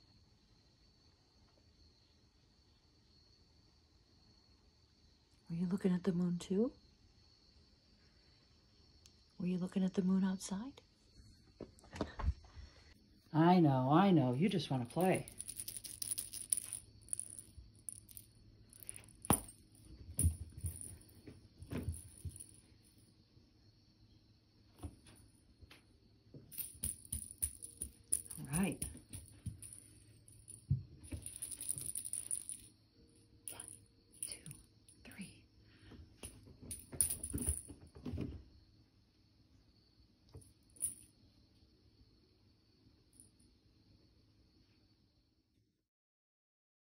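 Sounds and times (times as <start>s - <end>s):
cat toy rattling and jingling: 14.8s - 21.1s, 26.5s - 32.7s
cat batting toy on carpet: 14.9s - 22.6s.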